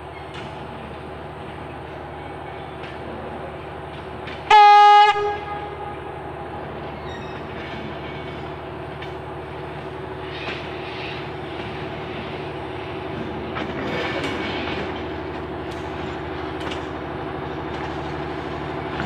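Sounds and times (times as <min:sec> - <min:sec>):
diesel rail motor running: 0:00.0 - 0:19.0
train horn blast: 0:04.5 - 0:06.4.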